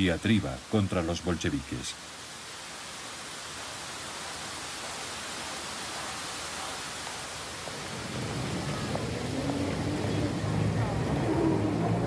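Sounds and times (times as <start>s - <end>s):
steady hiss: 0.0s - 12.0s
low rumble: 7.7s - 12.0s.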